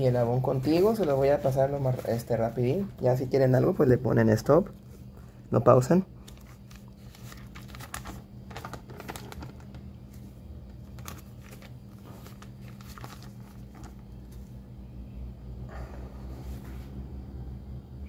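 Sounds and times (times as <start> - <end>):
paper rustling and crinkling: 0.0 - 3.2, 6.2 - 14.6
low steady hum: 0.0 - 18.0.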